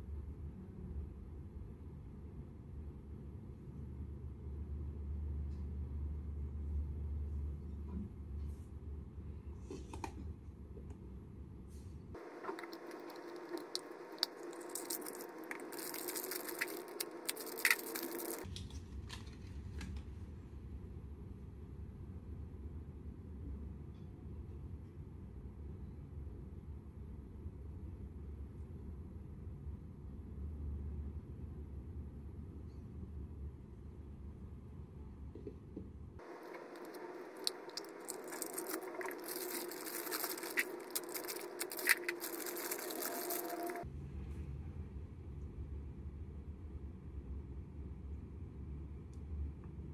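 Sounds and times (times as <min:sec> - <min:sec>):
steady low hum: 0:00.0 - 0:18.5, 0:26.2 - 0:49.9
plastic bag crinkling: 0:12.2 - 0:18.5, 0:36.2 - 0:43.8.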